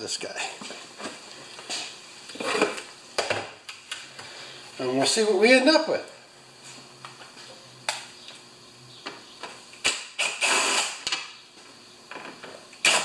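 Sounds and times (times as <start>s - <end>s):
cordless drill bursts: 9.8s - 11.0s.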